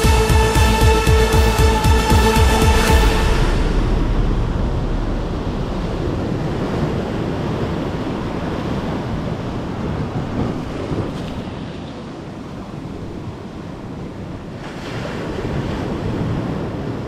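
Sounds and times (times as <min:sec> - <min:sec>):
wind rumbling on microphone: 0:02.8 - 0:17.0
small waves breaking on beach: 0:06.6 - 0:17.0.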